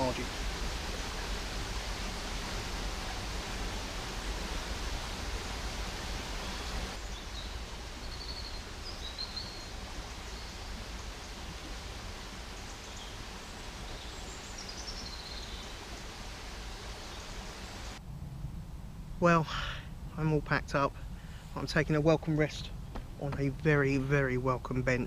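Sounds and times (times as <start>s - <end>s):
steady river hiss: 0.0s - 25.0s
small birds chirping: 5.5s - 18.0s
low rumble: 17.9s - 23.6s.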